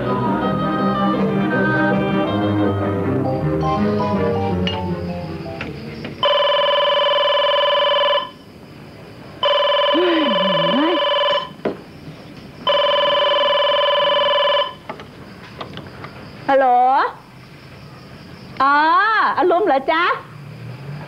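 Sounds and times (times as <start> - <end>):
background music: 0.0 - 6.2
telephone ringing: 6.2 - 8.4, 9.4 - 11.6, 12.6 - 14.9.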